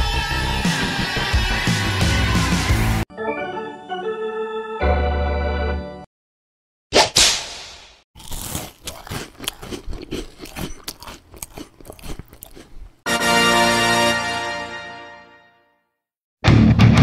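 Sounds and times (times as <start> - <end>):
music: 0.0 - 6.1, 13.1 - 17.0
chewing close to microphone: 8.2 - 13.0
sausage crunching bite: 8.2 - 13.1.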